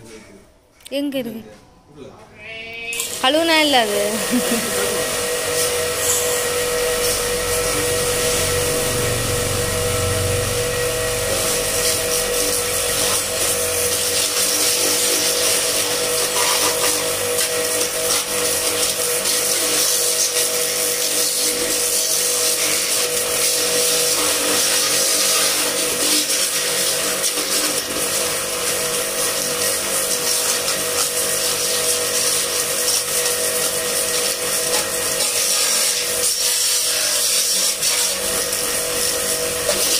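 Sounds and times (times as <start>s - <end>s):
pressure washer motor hum: 3.0s - 39.9s
deep rumble: 7.8s - 11.8s
high-pressure water jet hiss: 11.1s - 39.9s.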